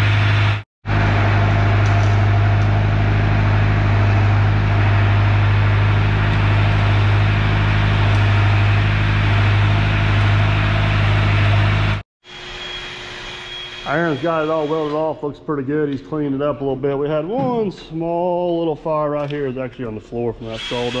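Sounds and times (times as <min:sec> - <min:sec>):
welding machine engine hum: 0:00.0 - 0:12.0.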